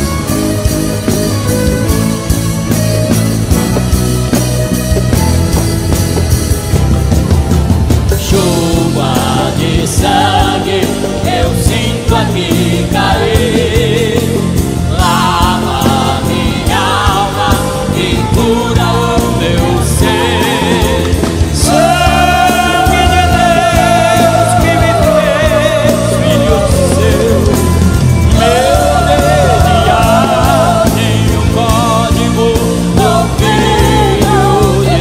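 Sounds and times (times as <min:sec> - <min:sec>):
instrumental backing: 0:00.0 - 0:35.0
vocal group singing gospel: 0:08.1 - 0:35.0.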